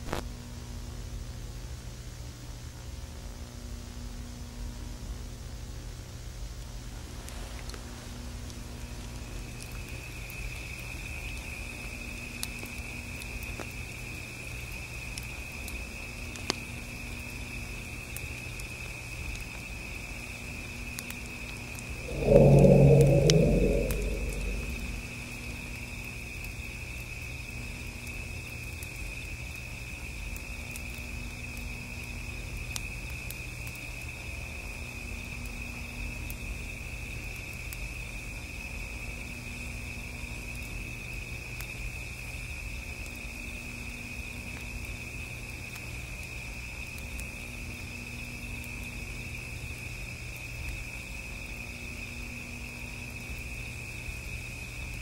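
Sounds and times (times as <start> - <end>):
low rumble: 22.0 - 25.4.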